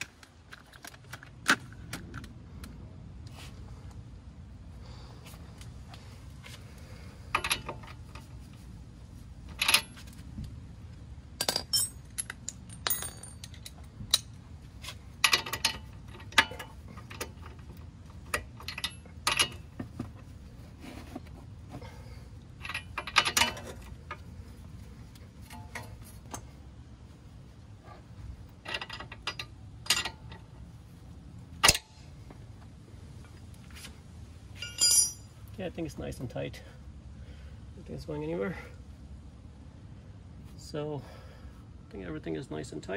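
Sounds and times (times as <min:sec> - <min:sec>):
wrench clinking on nut: 0:09.5 - 0:10.1, 0:11.4 - 0:14.3, 0:15.2 - 0:19.8, 0:22.6 - 0:24.2, 0:28.6 - 0:30.5, 0:34.6 - 0:35.3.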